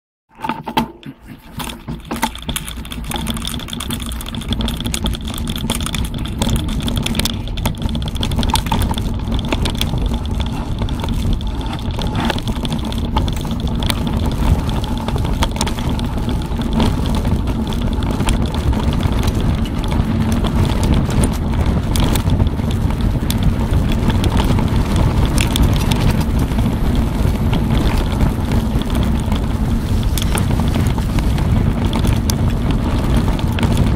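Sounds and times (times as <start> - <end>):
bike knocks and rattles: 0.3 - 33.9
tyre rumble: 0.4 - 33.9
wind rushing over microphone: 1.5 - 33.9.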